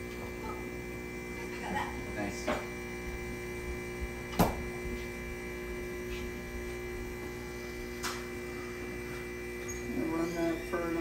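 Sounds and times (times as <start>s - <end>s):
espresso machine pump humming: 0.0s - 11.0s
sharp knock: 4.4s - 4.6s.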